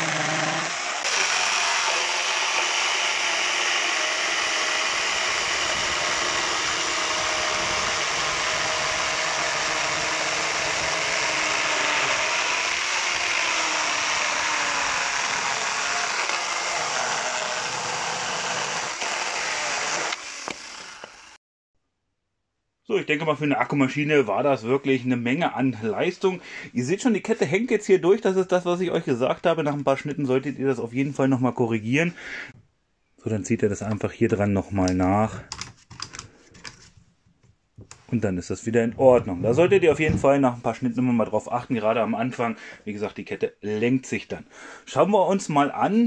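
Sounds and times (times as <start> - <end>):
chainsaw chain cutting wood: 0.0 - 21.4
chainsaw motor whine: 0.0 - 21.4.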